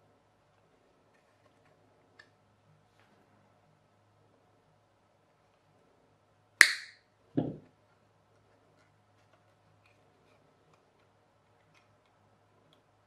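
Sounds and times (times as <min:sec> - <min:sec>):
wire cutters snapping steel wire: 0:06.6 - 0:07.0
dull knock: 0:07.4 - 0:07.7.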